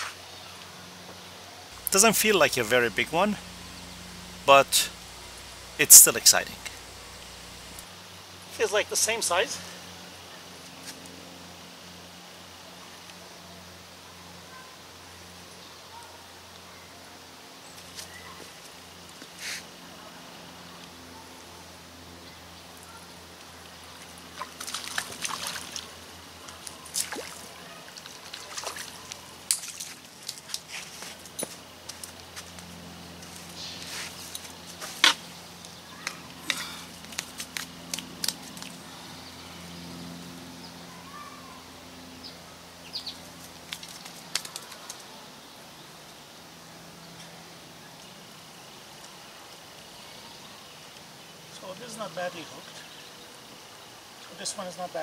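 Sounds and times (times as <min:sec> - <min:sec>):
water splashes and drips: 0:23.4 - 0:30.7.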